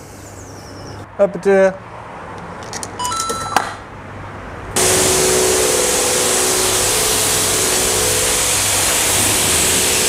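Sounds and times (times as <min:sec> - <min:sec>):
control panel beep: 0:03.0 - 0:03.8
pressure washer jet hissing: 0:04.8 - 0:10.0
pump humming: 0:04.8 - 0:10.0.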